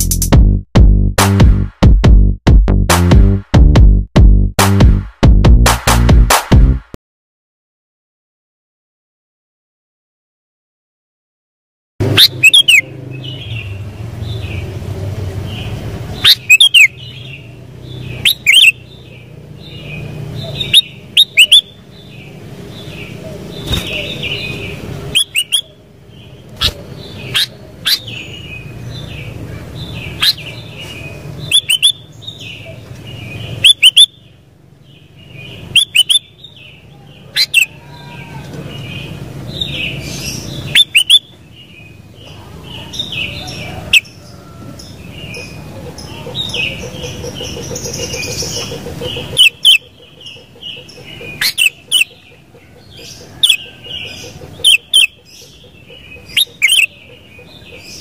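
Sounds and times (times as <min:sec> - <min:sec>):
bird chirping: 0:12.0 - 0:58.0
loud sharp bird calls: 0:12.0 - 0:58.0.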